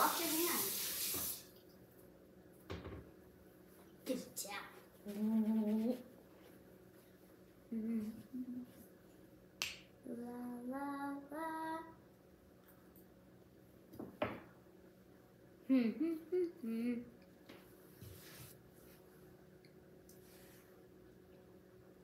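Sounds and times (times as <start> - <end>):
girl singing or humming: 5.0 - 6.1, 7.7 - 8.7, 10.0 - 12.0, 15.7 - 17.1.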